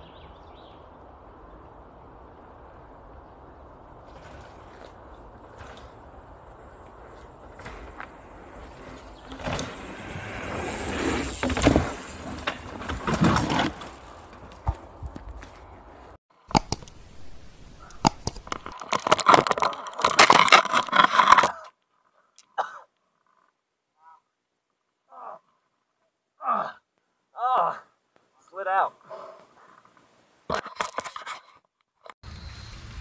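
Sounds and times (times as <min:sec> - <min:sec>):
tyre and wind rushing: 0:00.0 - 0:16.2
bike rattling over rocky trail: 0:03.9 - 0:16.8, 0:18.0 - 0:21.7.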